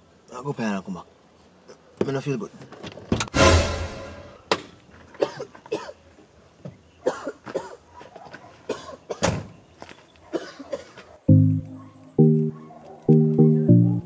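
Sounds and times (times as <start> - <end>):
man coughing hoarsely: 5.2 - 6.0, 7.0 - 7.8, 8.7 - 9.3, 10.3 - 11.0.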